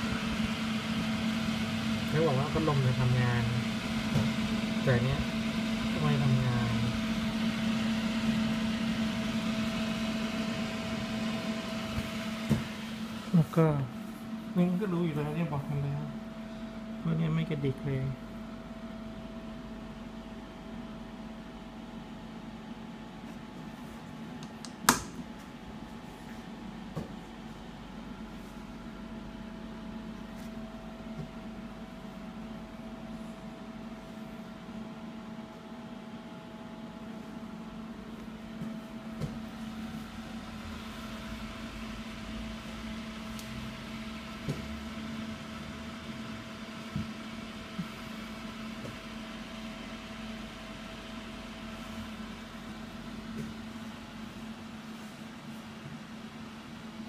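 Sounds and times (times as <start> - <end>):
cooling fan whir: 0.0 - 57.0
steady electrical hum: 0.0 - 57.0.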